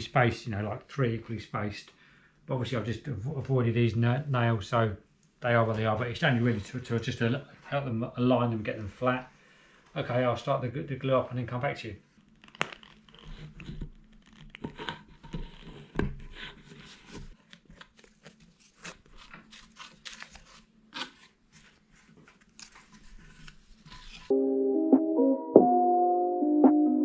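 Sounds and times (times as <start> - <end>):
glue bottle squeezing and scraping: 12.2 - 17.3
music: 24.3 - 27.0.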